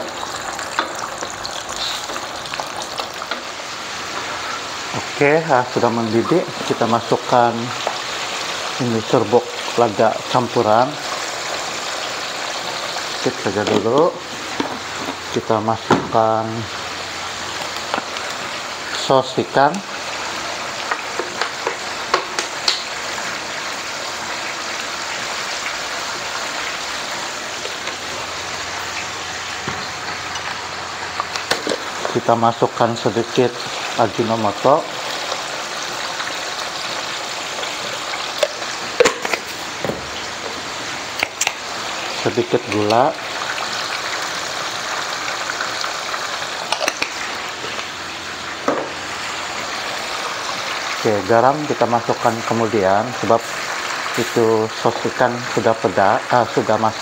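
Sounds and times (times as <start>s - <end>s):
gravy boiling in a wok: 0.0s - 57.0s
utensils clinking against wok: 46.7s - 47.2s.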